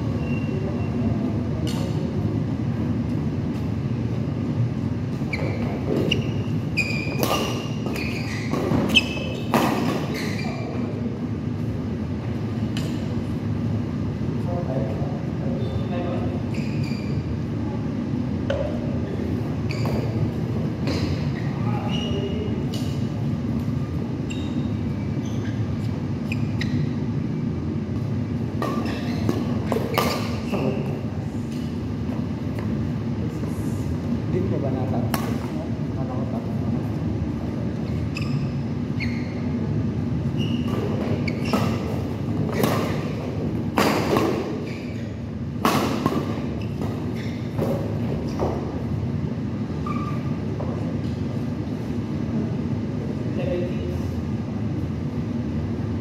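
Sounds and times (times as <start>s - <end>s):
low hum of hall: 0.0s - 56.0s
sneakers squeaking on court: 0.2s - 1.0s, 5.1s - 11.0s, 15.6s - 17.4s, 19.5s - 27.3s, 27.9s - 32.8s, 37.8s - 39.6s, 40.2s - 49.0s, 49.8s - 51.3s
racket hitting shuttlecock: 7.1s - 10.2s, 40.7s - 44.6s, 45.6s - 48.7s.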